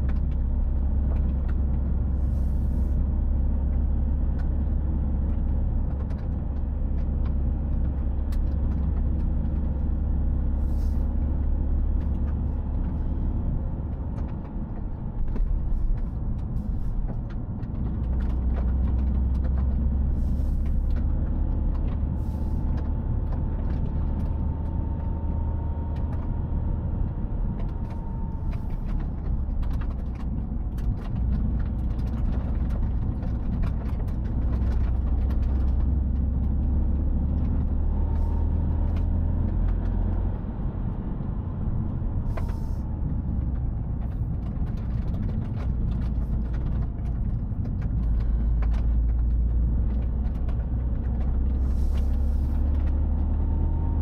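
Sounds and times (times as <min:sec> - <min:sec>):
car interior engine and tyre drone: 0:00.0 - 0:54.0.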